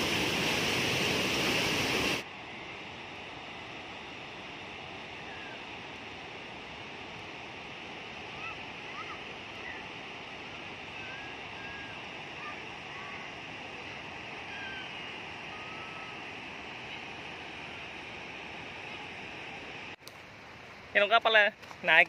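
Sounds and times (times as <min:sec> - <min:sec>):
waterfall rushing over rocks: 0:00.0 - 0:02.3.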